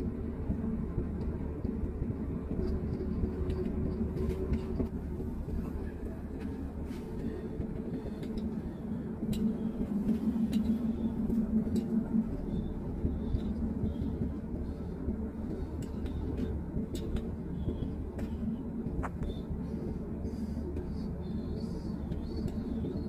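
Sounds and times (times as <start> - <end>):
car driving rumble inside cabin: 0.0 - 23.0.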